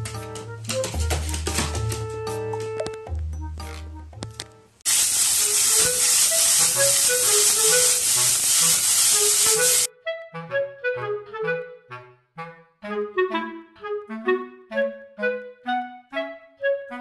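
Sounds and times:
light melodic background music: 0.0s - 4.8s, 9.6s - 17.0s
bean sprouts sizzling in a wok: 4.9s - 9.9s.

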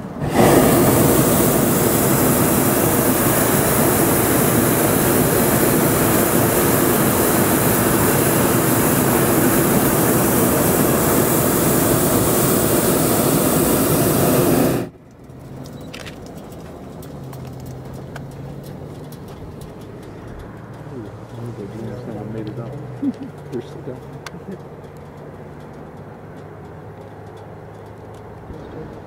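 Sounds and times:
propane burners firing: 0.0s - 18.8s.

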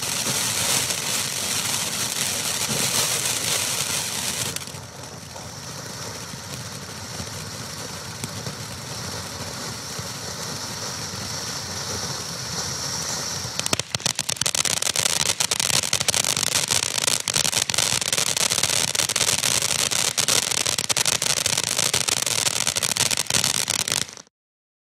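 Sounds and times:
firework crackling: 0.0s - 24.3s
firework fountain hissing: 0.0s - 24.3s.

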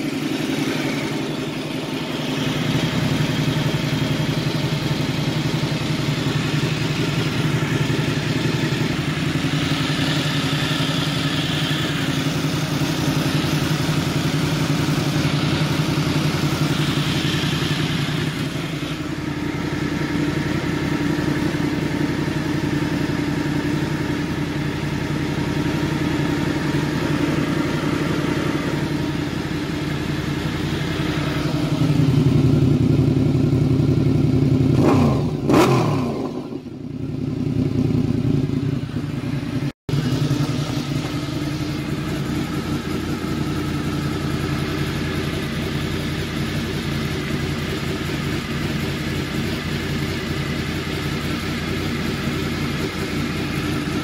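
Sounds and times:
motorcycle engine idling: 0.0s - 54.0s.

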